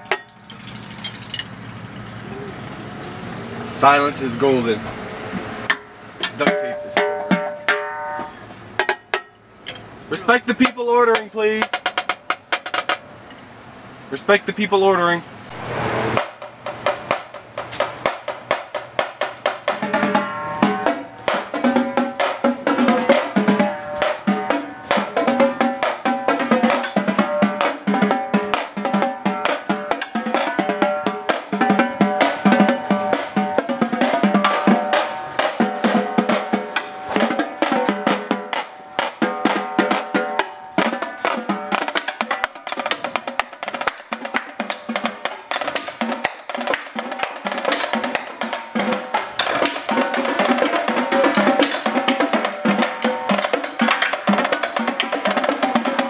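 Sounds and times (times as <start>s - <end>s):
marching tenor drums: 5.7s - 9.2s, 10.1s - 13.0s, 16.1s - 56.0s
marching snare drum: 6.4s - 8.0s, 10.2s - 13.0s, 16.2s - 56.0s.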